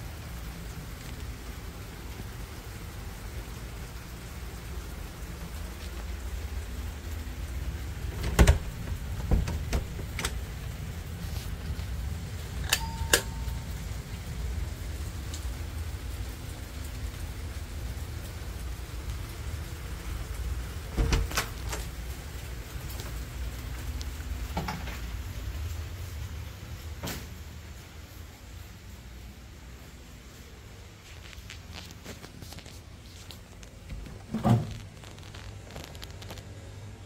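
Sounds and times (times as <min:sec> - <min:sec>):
key card lock beep: 0:12.6 - 0:13.6.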